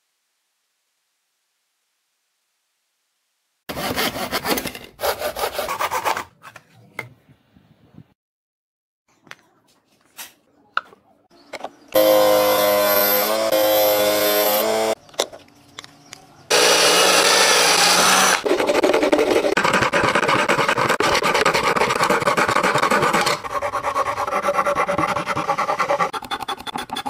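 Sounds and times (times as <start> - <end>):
saw cutting plastic sheet: 3.7 - 6.3, 12.0 - 15.0, 16.5 - 27.0
hand file rasping: 16.5 - 27.0.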